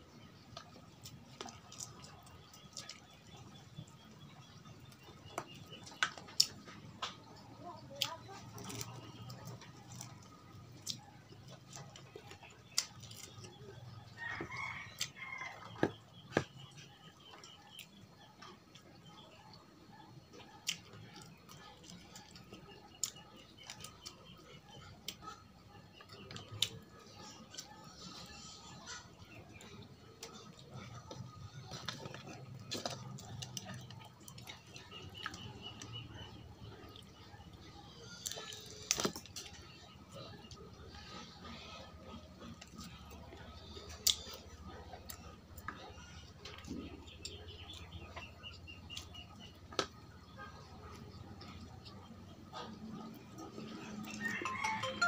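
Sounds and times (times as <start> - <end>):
soft eating sounds: 0.0 - 55.0
rooster crowing: 54.1 - 55.0.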